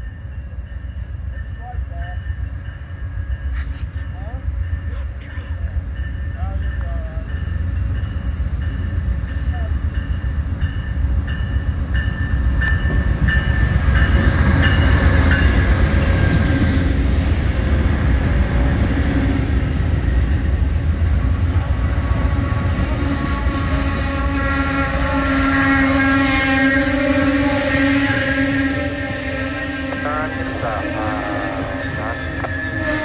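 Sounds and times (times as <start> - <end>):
train bell ringing: 0.0 - 17.2, 24.1 - 33.0
train cars rolling past: 0.0 - 33.0
locomotive rumble: 2.5 - 33.0.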